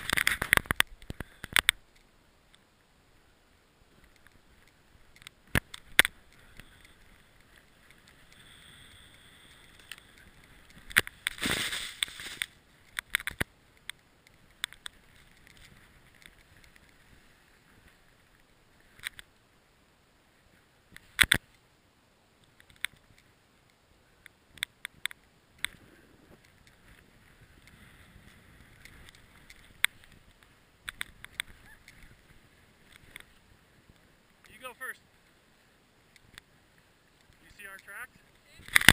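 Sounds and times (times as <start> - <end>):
snowboard gliding through snow: 6.4 - 12.8
rushing scrape of snow: 11.3 - 12.6.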